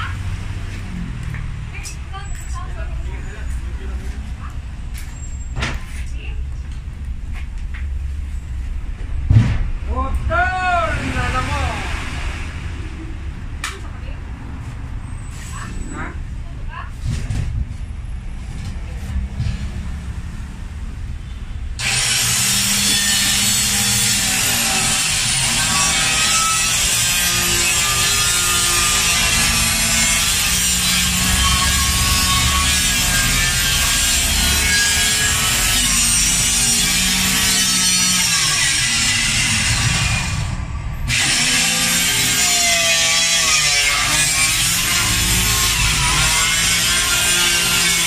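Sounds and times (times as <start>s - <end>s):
circular saw cutting plywood: 21.8s - 48.0s.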